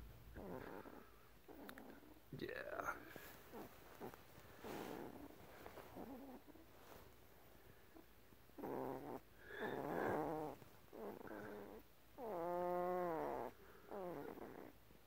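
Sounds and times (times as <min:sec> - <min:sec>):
puppy moaning in its sleep: 0:00.3 - 0:02.2, 0:02.9 - 0:06.7, 0:08.6 - 0:14.8.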